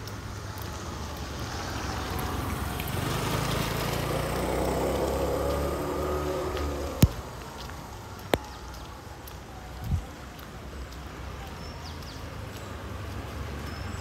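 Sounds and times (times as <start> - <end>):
vehicle engine passing: 0.5 - 8.0.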